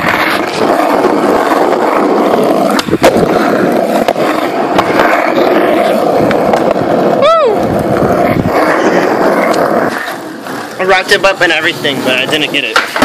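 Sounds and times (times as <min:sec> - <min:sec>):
skateboard clack: 0:00.0 - 0:13.0
skateboard rolling on asphalt: 0:00.0 - 0:13.0.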